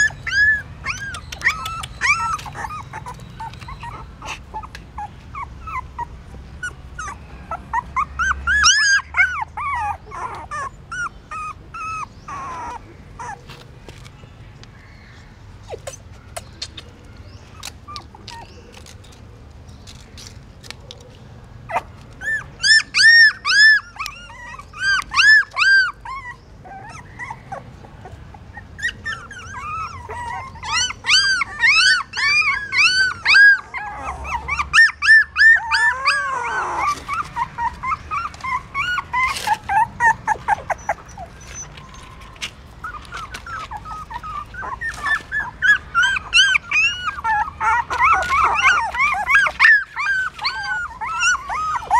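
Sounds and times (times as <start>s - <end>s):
puppies whining and crying: 0.0s - 51.9s.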